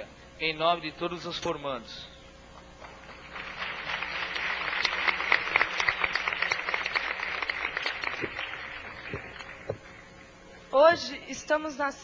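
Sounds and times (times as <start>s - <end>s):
audience applauding: 2.8s - 9.7s.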